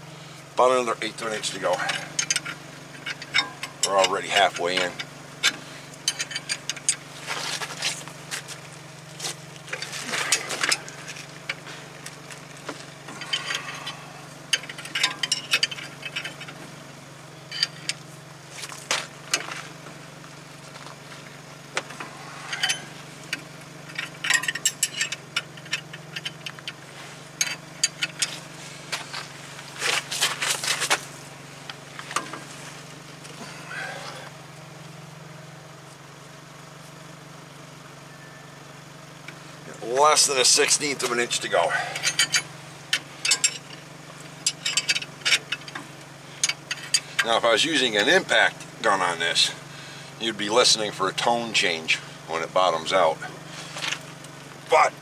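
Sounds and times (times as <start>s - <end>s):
low engine hum: 0.0s - 55.0s
metal clinks: 6.0s - 7.1s, 13.0s - 16.6s, 17.4s - 18.0s, 21.9s - 28.6s, 40.4s - 47.7s.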